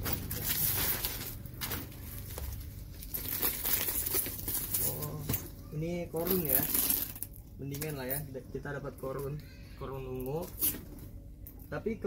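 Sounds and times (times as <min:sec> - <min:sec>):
handbags rustling and crinkling: 0:00.0 - 0:08.2.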